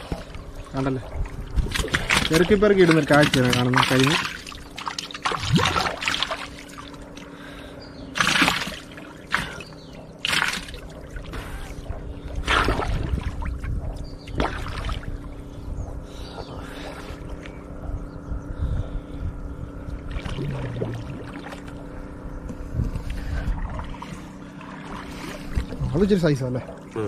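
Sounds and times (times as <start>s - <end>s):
water splashing: 0.0s - 7.4s, 8.2s - 15.3s, 23.5s - 27.0s
water lapping: 0.0s - 18.0s, 18.9s - 22.2s, 22.8s - 27.0s.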